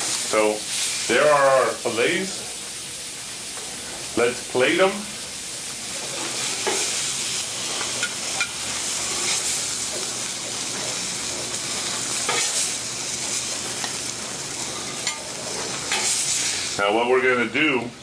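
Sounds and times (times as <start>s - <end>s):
steaks sizzling on griddle: 0.0s - 17.5s
metal spatula scraping griddle: 6.0s - 14.0s, 14.6s - 16.6s.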